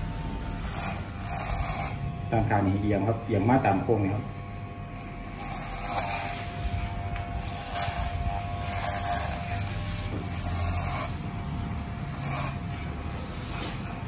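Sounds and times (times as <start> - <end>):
electric hair clippers buzzing: 0.0 - 14.0
clipper blade scraping hair: 0.4 - 2.0, 5.0 - 12.8, 13.4 - 14.0.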